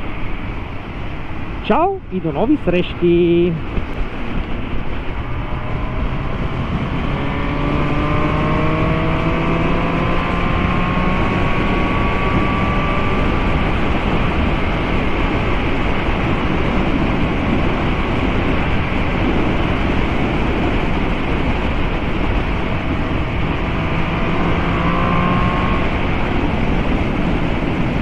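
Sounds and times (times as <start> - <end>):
wind noise rushing: 0.0 - 28.0
motorcycle engine accelerating: 3.2 - 28.0.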